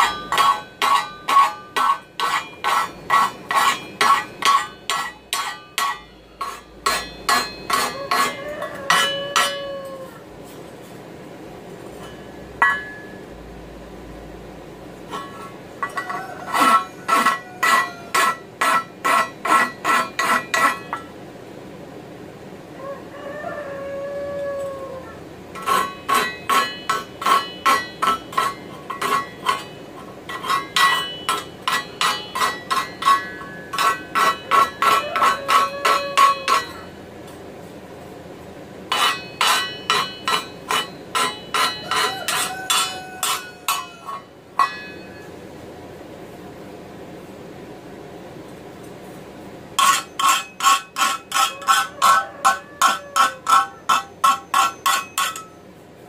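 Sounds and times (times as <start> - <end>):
file stroking steel: 0.0 - 9.6, 15.1 - 21.0, 25.6 - 36.9, 38.9 - 44.8, 49.8 - 55.5
steel pan ringing: 0.0 - 10.0, 12.0 - 13.3, 15.1 - 21.2, 25.5 - 37.0, 38.9 - 45.4, 49.8 - 55.7.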